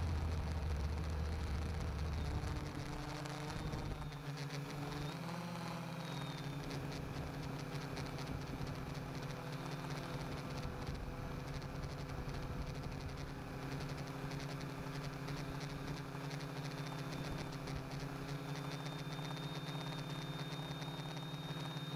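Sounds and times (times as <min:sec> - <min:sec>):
low rumble: 0:00.0 - 0:04.2.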